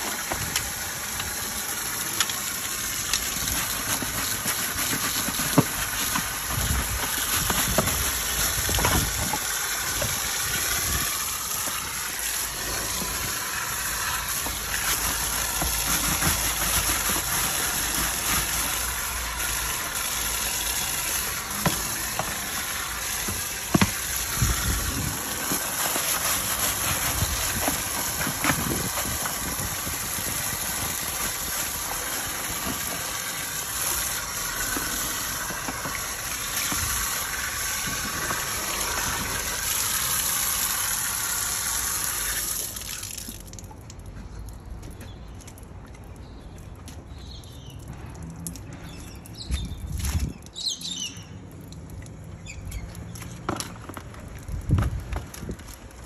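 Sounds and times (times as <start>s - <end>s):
water jet spraying and splashing: 0.0s - 44.0s, 47.8s - 56.0s.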